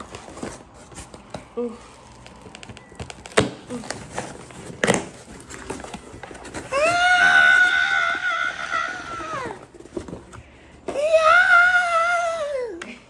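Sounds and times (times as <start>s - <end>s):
cardboard box rustling: 0.0s - 7.7s
cardboard tearing: 0.0s - 8.0s
woman squealing: 6.7s - 9.6s.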